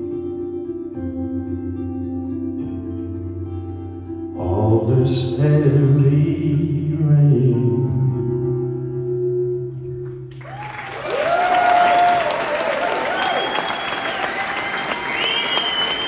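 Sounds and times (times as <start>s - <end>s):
acoustic guitar chords: 0.0s - 10.4s
applause: 10.3s - 16.0s.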